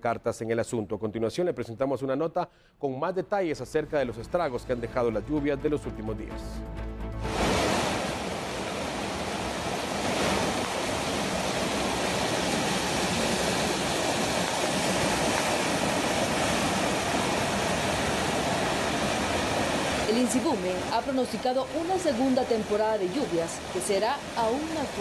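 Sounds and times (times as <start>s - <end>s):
floodwater rushing down a channel: 7.3s - 25.0s.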